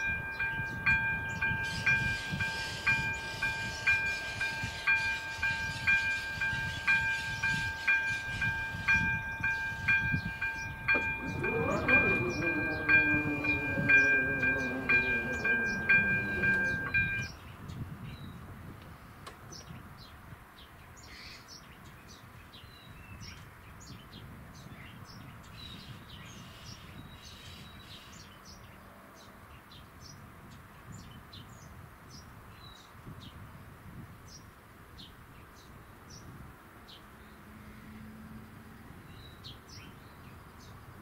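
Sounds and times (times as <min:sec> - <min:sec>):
low outdoor rumble: 0:00.0 - 0:17.3
small birds chirping: 0:00.0 - 0:18.4.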